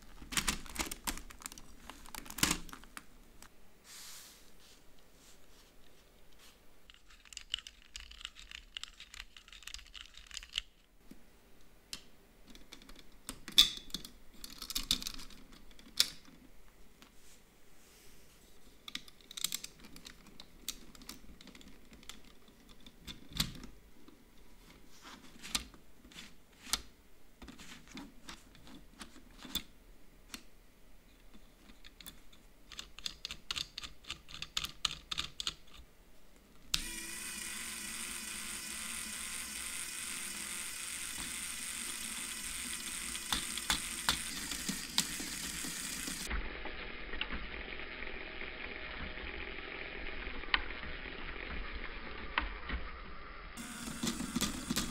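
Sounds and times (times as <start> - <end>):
plastic parts clicking and clacking: 0.0 - 3.5, 6.8 - 10.9, 11.9 - 16.5, 18.8 - 29.7, 31.2 - 35.9, 36.7 - 46.4, 53.6 - 54.9
gear turning rapid clicking: 36.8 - 46.3.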